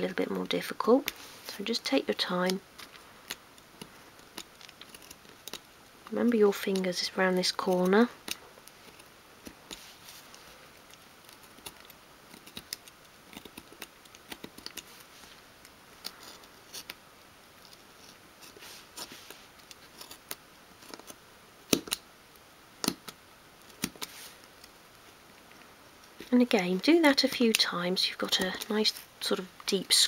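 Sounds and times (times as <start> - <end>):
knife scratching wood: 3.2 - 5.7, 17.6 - 22.0.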